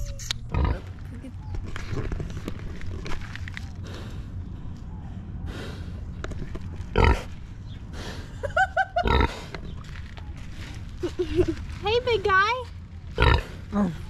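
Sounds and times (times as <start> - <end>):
pig grunting: 13.2 - 14.0.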